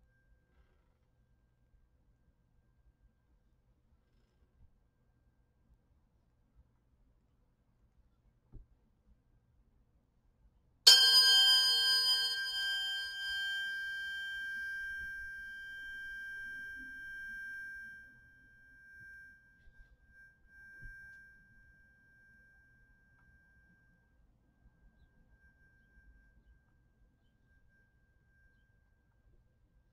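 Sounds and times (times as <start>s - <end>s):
tuning forks ringing: 10.9s - 29.3s.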